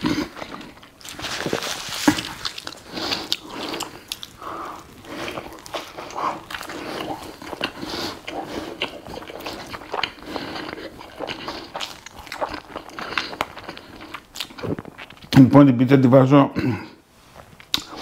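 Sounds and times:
person chewing food: 0:00.0 - 0:15.3, 0:17.4 - 0:18.0
wet mouth clicks and smacks: 0:17.6 - 0:18.0.

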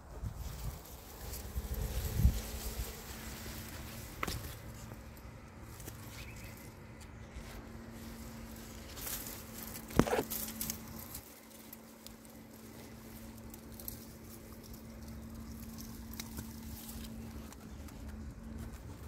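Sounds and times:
faint steady hum: 0:00.0 - 0:19.0
leaves rustling: 0:00.0 - 0:19.0.

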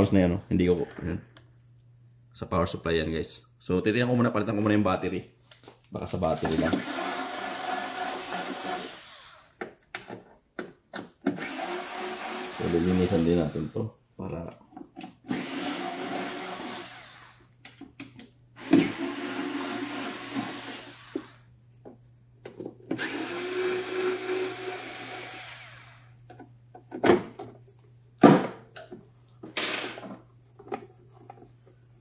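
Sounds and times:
steady low hum: 0:00.0 - 0:06.2
electric screwdriver running: 0:06.8 - 0:09.5, 0:11.4 - 0:13.7, 0:15.3 - 0:17.4, 0:23.0 - 0:26.0.

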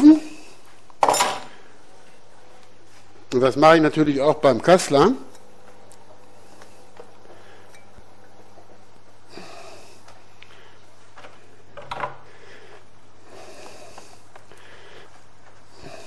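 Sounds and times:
low electrical hum: 0:00.0 - 0:16.0
man breathing and sniffing: 0:06.3 - 0:07.9, 0:09.2 - 0:16.0.

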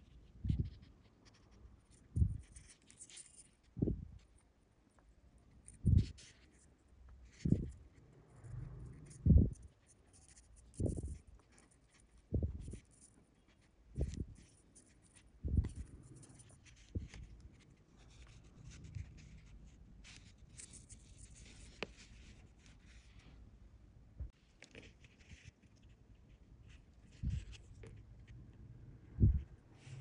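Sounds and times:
soft low thumps: 0:02.2 - 0:02.4, 0:12.3 - 0:12.8, 0:15.4 - 0:15.8, 0:29.2 - 0:29.6.

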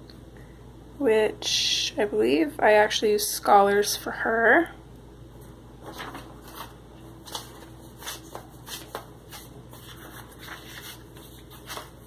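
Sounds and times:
paper sheets rustling: 0:05.8 - 0:12.0.

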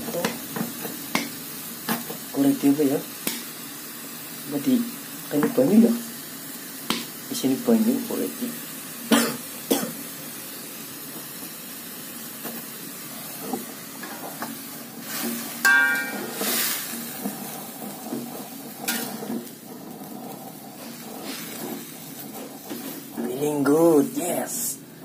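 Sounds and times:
greens sizzling in a wok: 0:00.0 - 0:25.0
metal spatula scraping a pan: 0:13.2 - 0:23.3.

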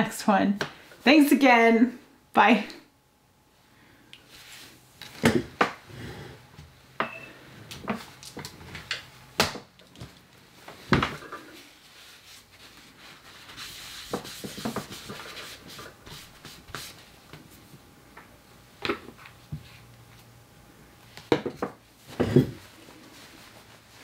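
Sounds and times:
soft rustling: 0:22.0 - 0:24.0.

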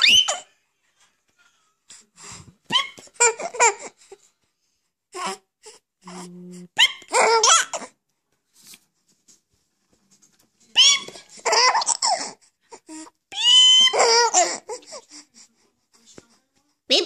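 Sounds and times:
baby laughing: 0:02.7 - 0:04.0, 0:06.8 - 0:07.9, 0:10.7 - 0:12.4, 0:13.4 - 0:15.0.

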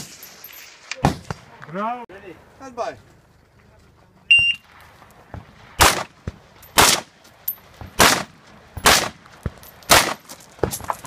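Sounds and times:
rifle shots: 0:05.5 - 0:07.2, 0:08.0 - 0:09.2, 0:09.9 - 0:10.3.

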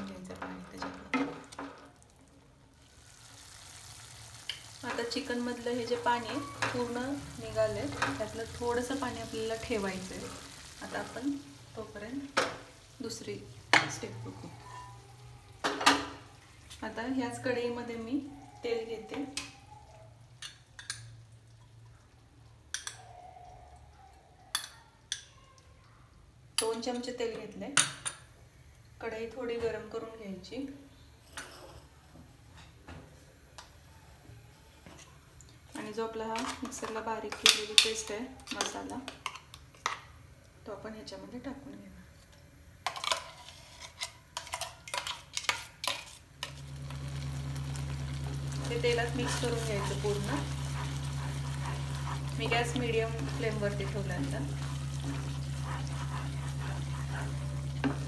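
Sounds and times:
low steady hum: 0:46.4 - 0:58.0.

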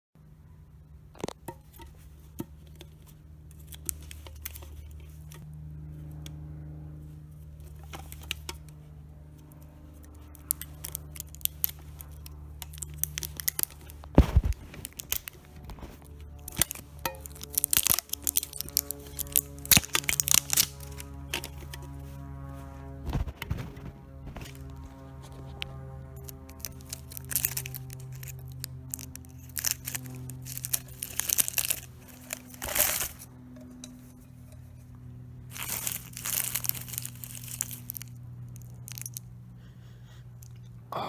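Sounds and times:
metal tin clicks and scrapes: 0:01.2 - 0:05.5, 0:07.7 - 0:08.8, 0:10.3 - 0:22.0, 0:26.2 - 0:38.0
rustles: 0:07.0 - 0:39.4.

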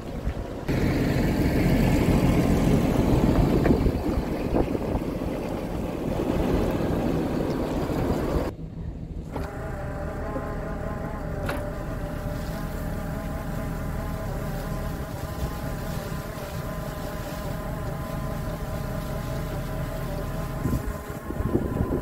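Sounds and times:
tractor running with whine: 0:00.0 - 0:22.0.

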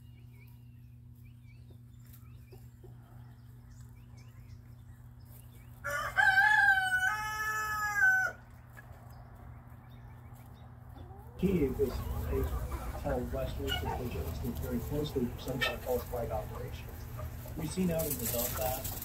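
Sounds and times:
small birds chirping: 0:00.0 - 0:19.0
rooster crowing: 0:05.8 - 0:08.4
low steady hum: 0:08.4 - 0:19.0.

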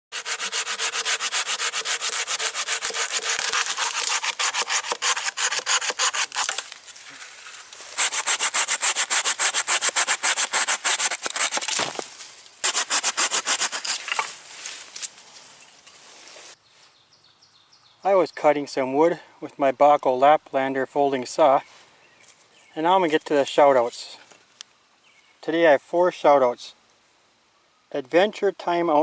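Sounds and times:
saw cutting through branch: 0:00.1 - 0:06.8, 0:07.9 - 0:12.0, 0:12.6 - 0:14.3.

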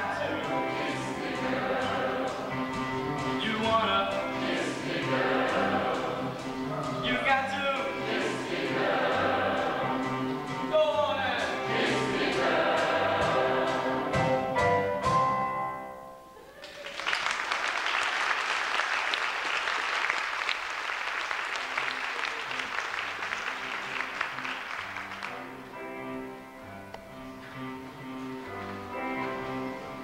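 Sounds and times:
choir singing a chord: 0:00.0 - 0:02.9, 0:04.2 - 0:07.0, 0:07.8 - 0:10.6, 0:11.5 - 0:14.6
instrumental music: 0:00.0 - 0:16.4, 0:22.4 - 0:30.0
audience applauding: 0:16.4 - 0:25.7.

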